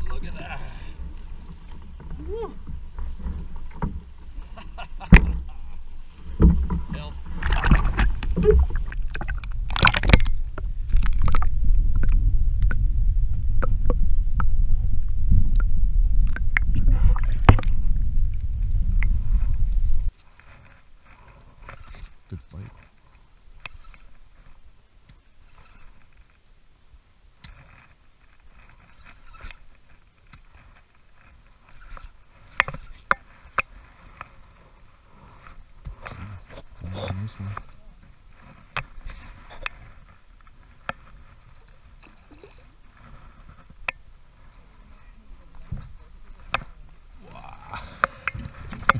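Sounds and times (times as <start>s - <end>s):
muffled underwater rumble: 0.0s - 20.1s, 40.7s - 48.9s
water splashing: 0.0s - 20.1s, 41.0s - 48.9s.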